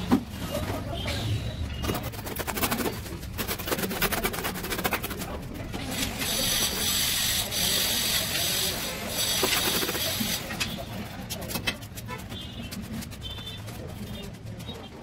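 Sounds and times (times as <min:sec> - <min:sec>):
trowel scraping mortar: 0:01.9 - 0:10.9.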